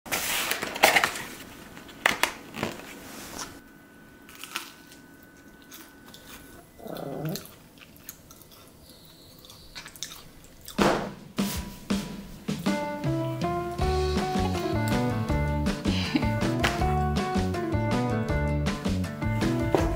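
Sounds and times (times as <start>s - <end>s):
crunchy fried chicken chewing: 4.3s - 10.8s.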